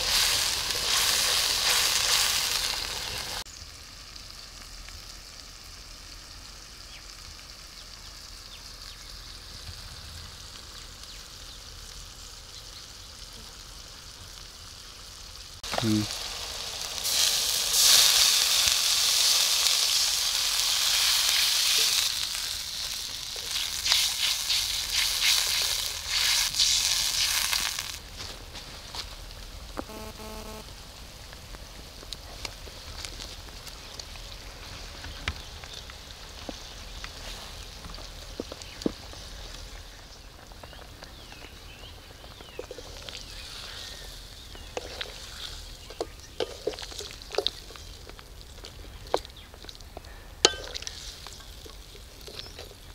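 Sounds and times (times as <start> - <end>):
loud sizzling and hissing: 0.0 - 28.2, 41.6 - 48.7.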